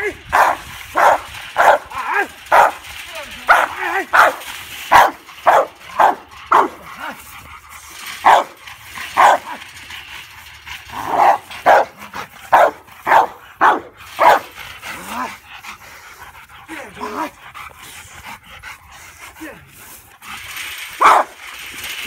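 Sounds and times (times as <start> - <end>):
dog barking: 3.5 - 6.7, 11.2 - 11.9, 12.5 - 14.5, 21.0 - 21.3.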